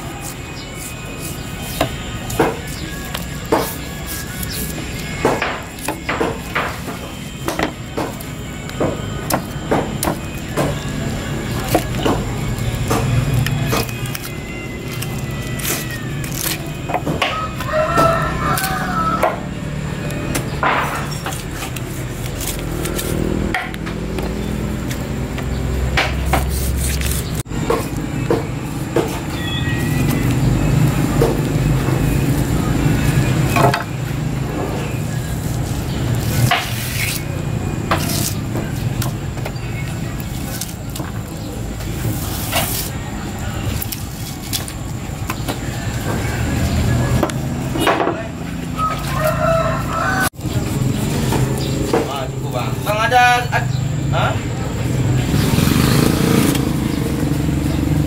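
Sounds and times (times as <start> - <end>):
knife scraping through fish: 0.0 - 6.0, 26.2 - 27.9
rooster crowing: 17.1 - 19.9, 48.6 - 50.4.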